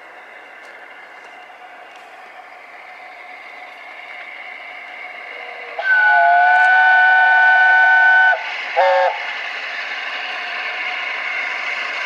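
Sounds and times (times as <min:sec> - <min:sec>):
steam engine hissing: 0:00.0 - 0:12.0
steam locomotive whistle blasts: 0:05.3 - 0:09.4.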